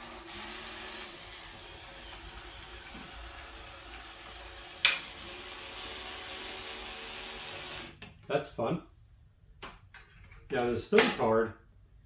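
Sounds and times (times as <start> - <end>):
toy robot motor whirring: 0.0 - 8.0.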